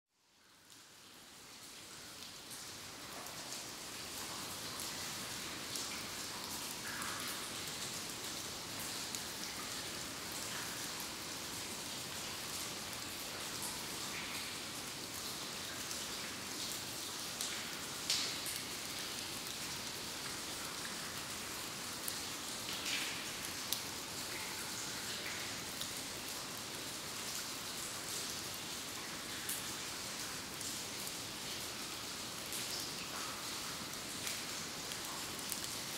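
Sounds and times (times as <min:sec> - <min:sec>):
water dripping in a cave: 0:00.2 - 0:35.9.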